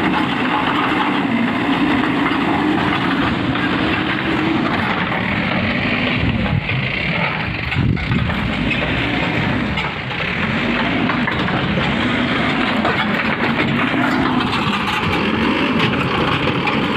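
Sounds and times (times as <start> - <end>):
backhoe diesel engine running: 0.0 - 16.9.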